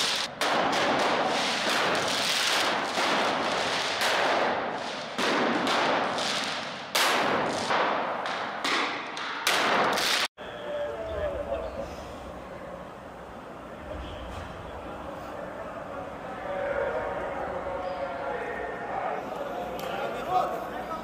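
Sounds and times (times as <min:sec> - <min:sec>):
firecrackers crackling: 0:00.0 - 0:10.4.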